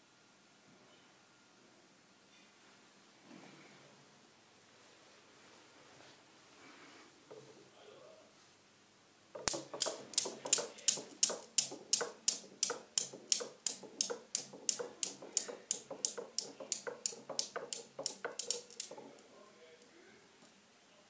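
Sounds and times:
steel balls clacking: 9.4 - 19.3.

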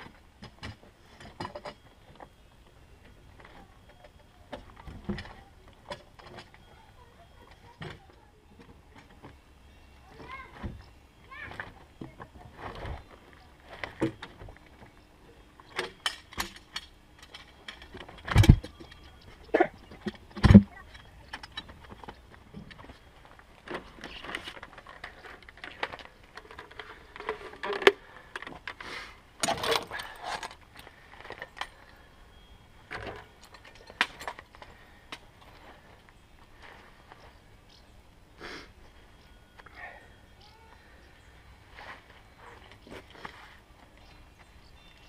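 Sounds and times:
gear clicking and rattling: 15.7 - 28.8
logs knocking and thudding: 19.6 - 20.8.

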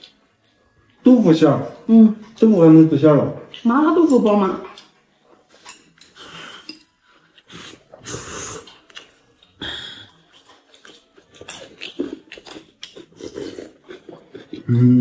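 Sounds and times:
person chewing with wet mouth noises: 4.6 - 15.0.

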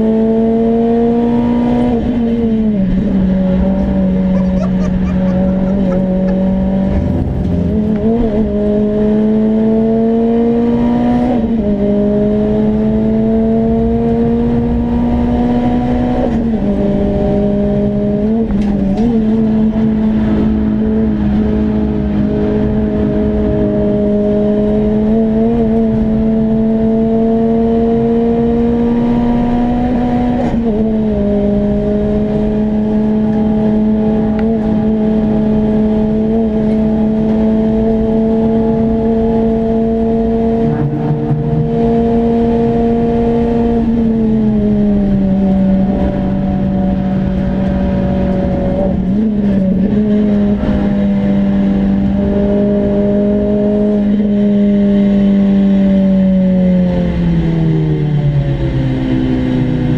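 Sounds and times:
car engine at high revs: 0.0 - 59.9
tyre and road noise: 1.9 - 9.4.

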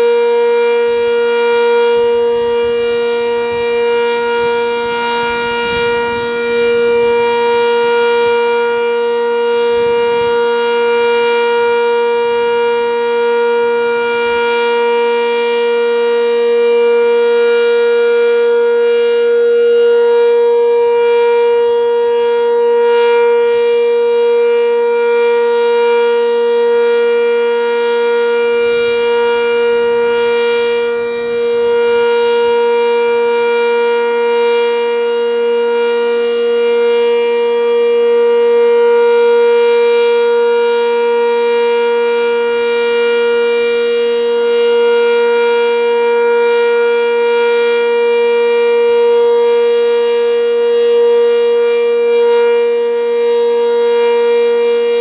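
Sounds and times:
warning siren steady tone: 0.0 - 55.0.

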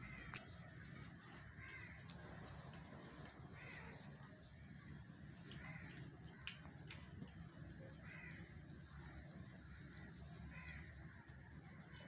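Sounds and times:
bird calls: 0.0 - 4.6.

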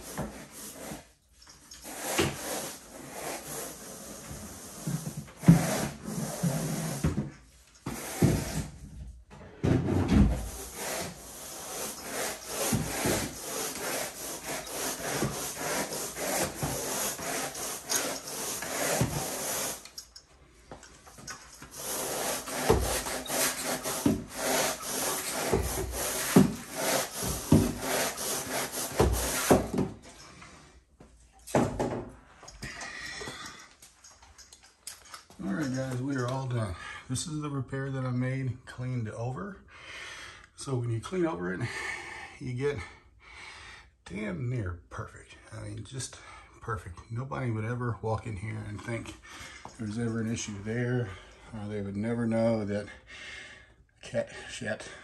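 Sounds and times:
rake rasping through carpet: 0.0 - 7.1, 10.4 - 20.2, 21.2 - 29.8.

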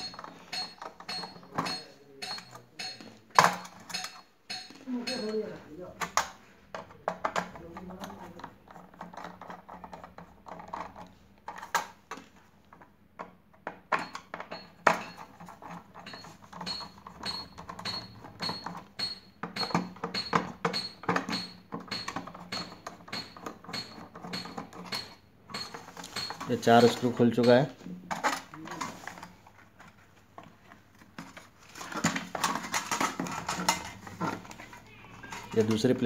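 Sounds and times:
screwdriver clicks and metallic clinks: 0.0 - 5.4, 13.9 - 28.6.

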